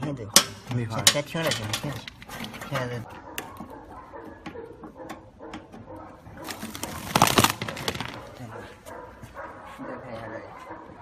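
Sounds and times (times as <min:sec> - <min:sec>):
foil duct hose crinkling: 0:06.2 - 0:08.9.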